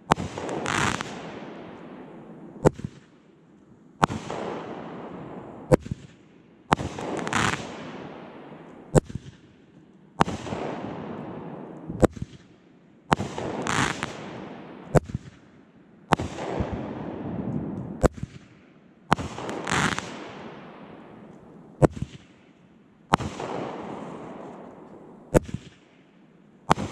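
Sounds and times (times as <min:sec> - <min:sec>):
firework burst crack: 0:00.0 - 0:01.4, 0:06.7 - 0:08.0, 0:13.1 - 0:15.3, 0:19.1 - 0:20.4.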